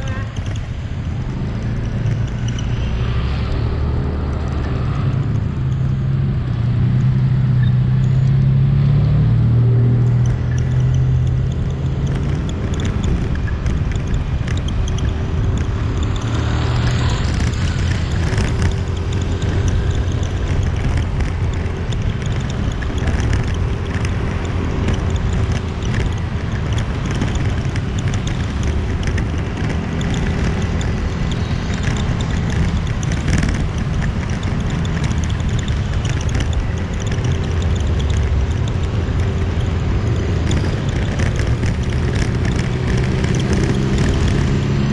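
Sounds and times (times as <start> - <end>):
motorbike engine running: 0.0 - 44.9
wind noise on microphone: 0.0 - 44.9.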